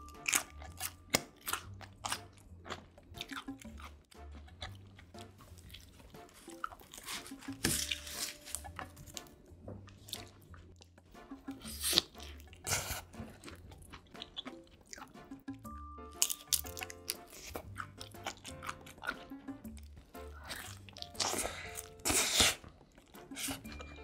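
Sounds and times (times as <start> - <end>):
wet chewing: 0.0 - 15.5, 16.1 - 24.0
quiet background music: 0.0 - 24.0
crunching bites into crust: 0.1 - 3.8.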